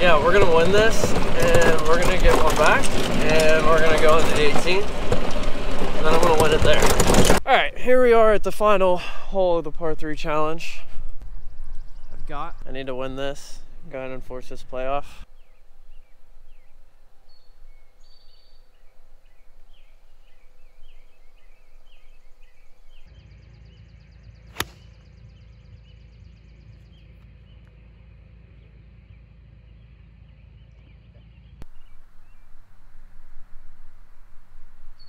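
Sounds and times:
low steady rumble: 0.0s - 8.8s, 9.5s - 35.0s
birds chirping: 0.0s - 35.0s
golf club striking ball: 24.5s - 24.9s.

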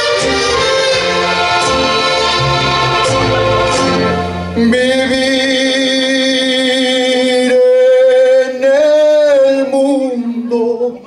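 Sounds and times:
backing track music: 0.0s - 7.8s
man singing: 4.6s - 11.0s.

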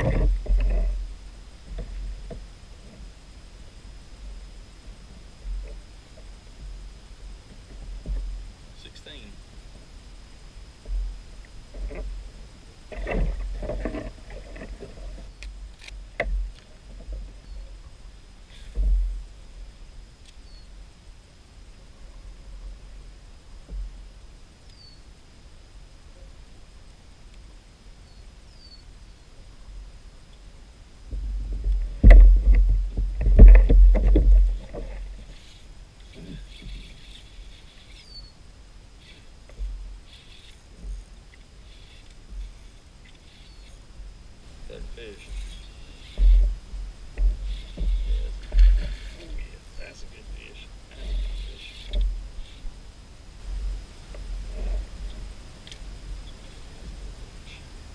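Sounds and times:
deep handling rumble: 0.0s - 20.0s, 30.9s - 57.9s
faint clicks: 12.9s - 17.8s, 54.1s - 57.7s
thump on kayak: 31.1s - 35.2s.

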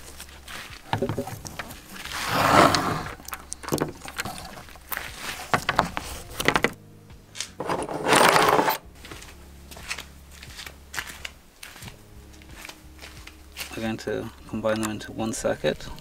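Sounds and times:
panel scraping on wood: 2.1s - 3.2s, 7.6s - 8.8s.

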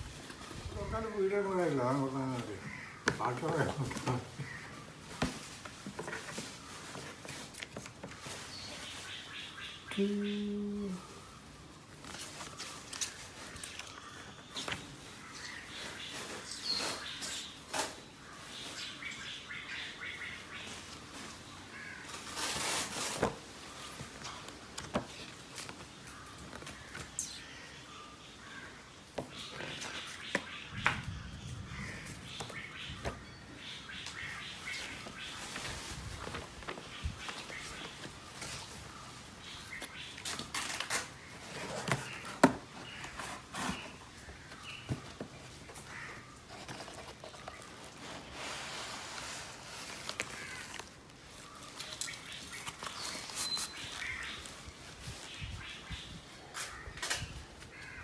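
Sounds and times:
cardboard packaging rustling: 0.0s - 9.4s, 11.8s - 18.9s, 20.9s - 27.2s, 34.8s - 55.4s
paper rustling and sliding: 22.1s - 25.9s, 45.5s - 55.2s.

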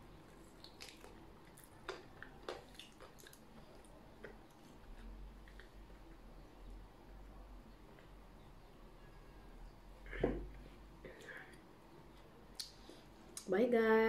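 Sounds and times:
person chewing: 0.2s - 5.8s
wet mouth clicks: 12.6s - 12.8s.

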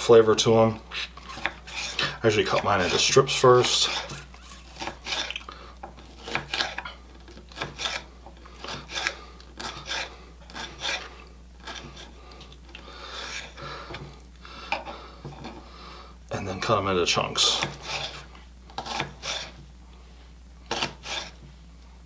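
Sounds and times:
knife slicing pepper on board: 0.9s - 12.1s, 17.4s - 19.6s, 20.7s - 21.4s.

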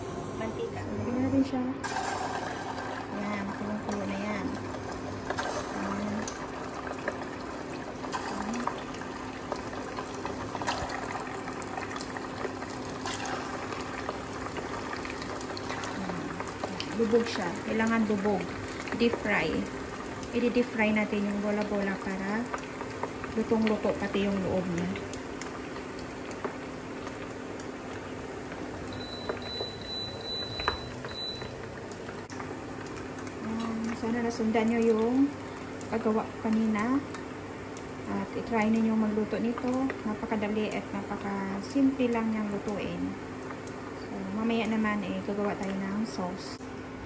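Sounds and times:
food sizzling in hot oil: 1.8s - 46.4s.

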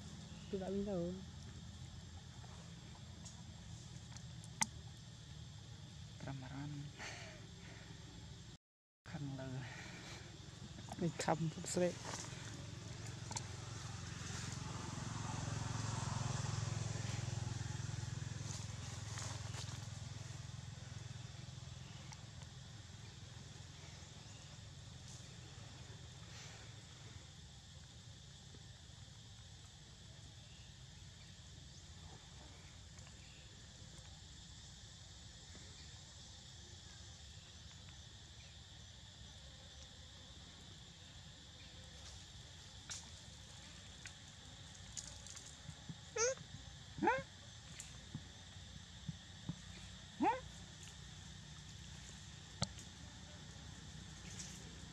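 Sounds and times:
insect chorus: 0.0s - 54.9s
vehicle engine humming: 10.2s - 22.4s.

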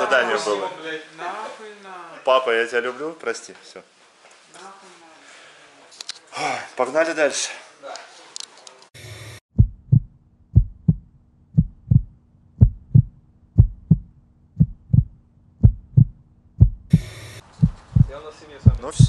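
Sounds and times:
heartbeat thumps: 9.5s - 19.0s.

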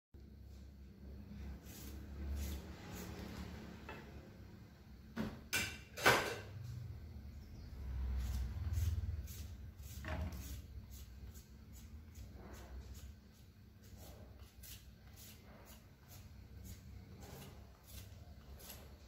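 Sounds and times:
knife cutting sweet potato: 13.8s - 19.0s.

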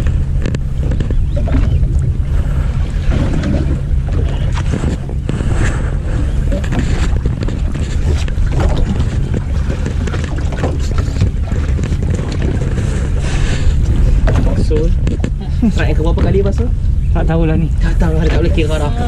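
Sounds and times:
small knocks and crackles: 0.0s - 2.2s, 6.5s - 13.1s
boat engine humming: 0.0s - 19.0s
wind buffeting microphone: 0.0s - 19.0s.

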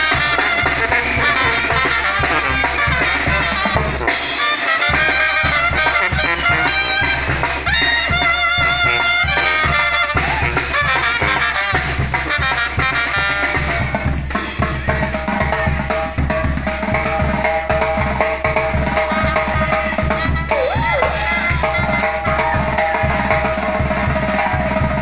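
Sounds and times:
trumpets and clarinets melody: 0.0s - 14.2s, 18.4s - 25.0s
drums and cymbal beat: 0.0s - 25.0s
sousaphone bass line: 18.5s - 25.0s.

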